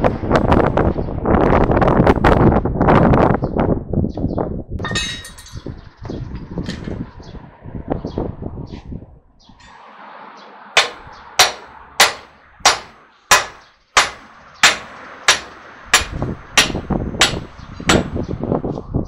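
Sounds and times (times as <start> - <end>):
hammer striking metal: 10.8 - 18.3.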